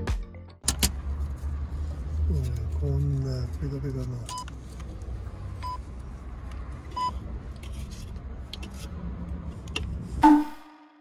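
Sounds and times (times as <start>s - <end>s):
brief loud tone: 10.2s - 11.0s
short beep: 10.2s - 11.0s.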